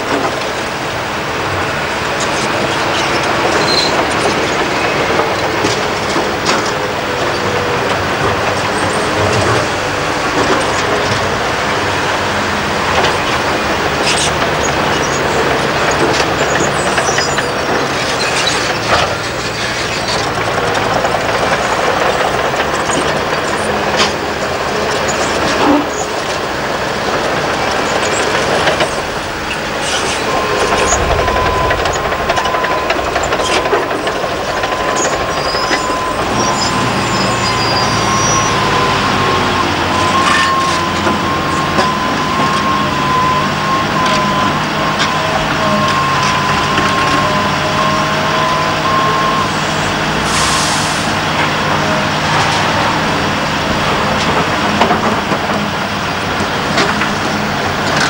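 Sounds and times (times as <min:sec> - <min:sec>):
heavy diesel machinery running: 0:00.0 - 0:58.0
high whine: 0:27.0 - 0:41.6.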